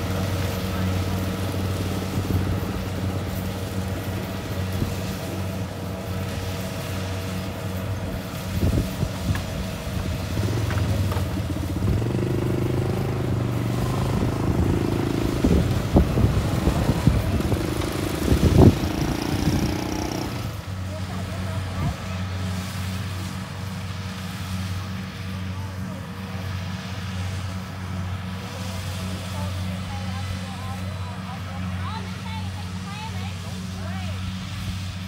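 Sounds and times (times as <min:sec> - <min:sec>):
combine harvester engine running: 0:00.0 - 0:35.0.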